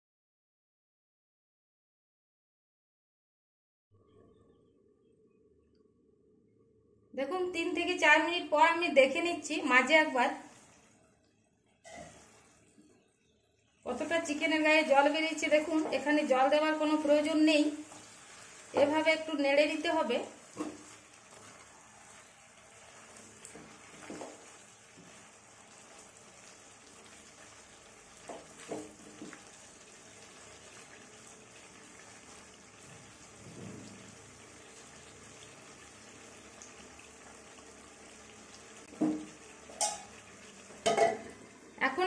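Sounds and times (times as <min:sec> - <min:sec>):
spatula scraping a pan: 0:11.9 - 0:12.6, 0:20.4 - 0:22.3
chicken sizzling in a pan: 0:11.9 - 0:12.8, 0:13.8 - 0:42.0
spatula knocking: 0:28.2 - 0:29.4.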